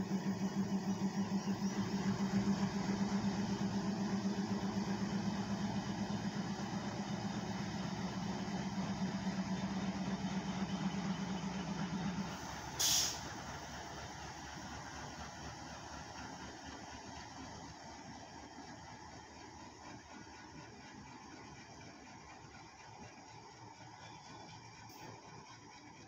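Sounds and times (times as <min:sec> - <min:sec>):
diesel locomotive engine hum: 0:00.0 - 0:26.0
burst of hiss: 0:12.7 - 0:13.3.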